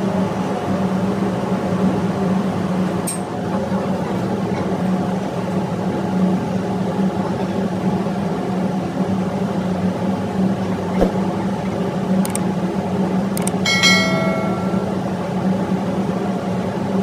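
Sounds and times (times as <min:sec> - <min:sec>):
sharp clicks: 0:12.2 - 0:12.4, 0:13.4 - 0:13.6
short ringing chime: 0:13.6 - 0:15.2.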